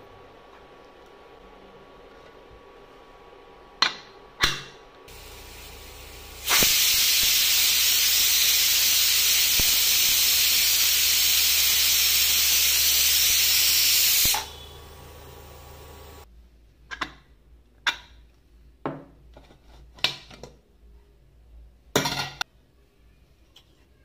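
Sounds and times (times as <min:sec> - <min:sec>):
low steady hum: 0:00.0 - 0:06.6, 0:14.3 - 0:16.8
pressure cooker venting steam: 0:05.1 - 0:16.3.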